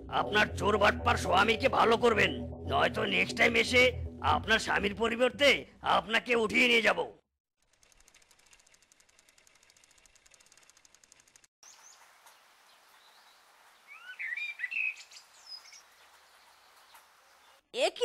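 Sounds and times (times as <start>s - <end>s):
faint rapid ticking: 7.6s - 11.5s
birds chirping: 11.6s - 17.6s.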